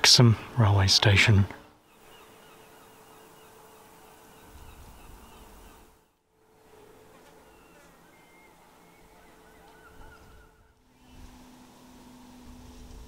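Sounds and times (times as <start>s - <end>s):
steady low hum: 0.0s - 13.0s
faint high chirps: 6.7s - 11.4s.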